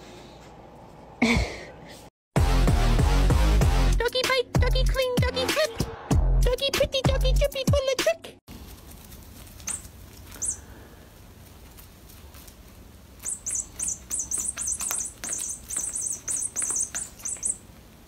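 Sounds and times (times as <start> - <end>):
high-pitched toy squeaks: 13.2 - 17.6.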